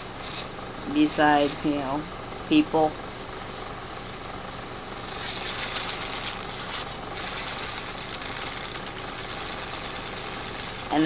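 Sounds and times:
steady low hum: 0.0s - 11.0s
toy ball rattling hiss: 5.0s - 11.0s.

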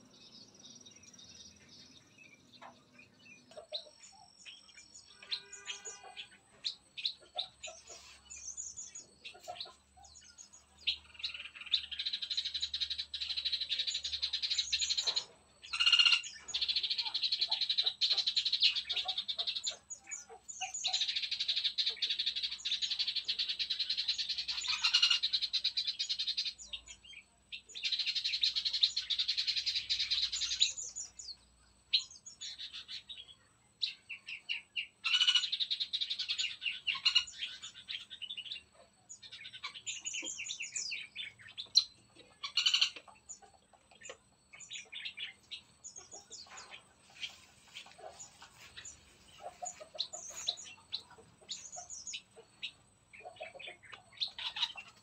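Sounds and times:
songbirds singing and chirping: 0.0s - 55.0s.

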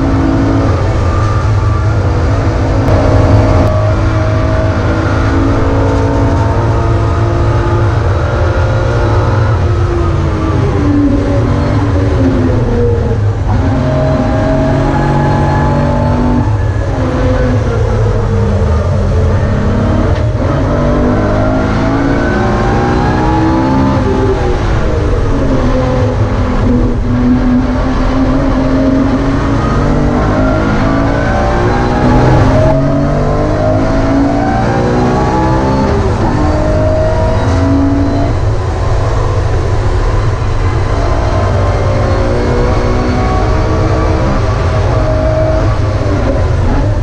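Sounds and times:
car engine accelerating: 0.0s - 47.0s.

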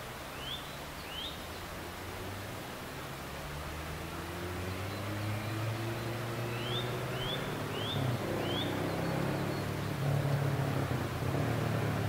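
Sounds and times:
low engine hum: 0.2s - 12.0s
bird whistled song: 0.4s - 1.4s, 6.4s - 9.8s.

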